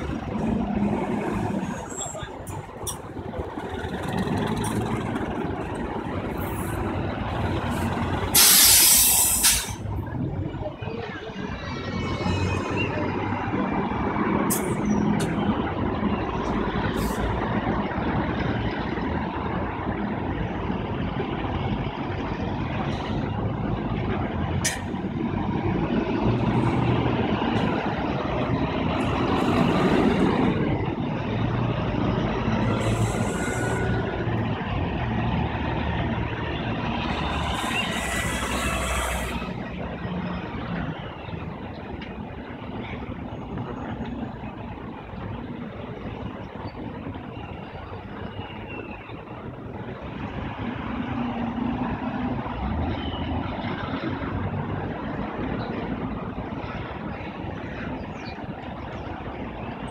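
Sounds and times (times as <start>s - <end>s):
bus engines humming: 0.0s - 59.9s
air brakes hissing: 8.3s - 9.9s, 32.7s - 34.0s.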